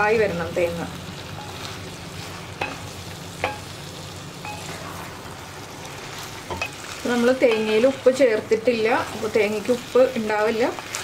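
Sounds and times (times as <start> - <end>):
sizzling: 0.0 - 11.0
spatula knocking pot: 2.6 - 3.7.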